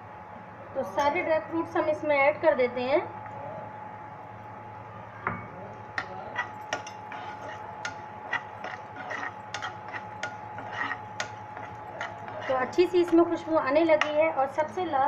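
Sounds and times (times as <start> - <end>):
spoon scraping a pan: 6.0 - 14.4.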